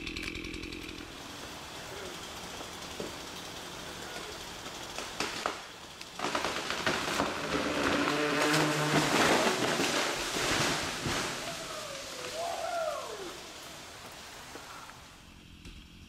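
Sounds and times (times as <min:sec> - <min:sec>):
tree falling through branches: 0:00.0 - 0:16.0
leaves swishing: 0:01.1 - 0:15.3
wood cracking and snapping: 0:04.2 - 0:12.4.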